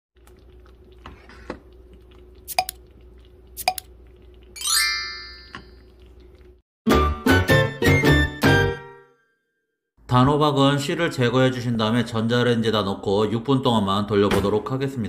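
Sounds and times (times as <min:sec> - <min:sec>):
bright chime sweeping up: 0:04.6 - 0:05.6.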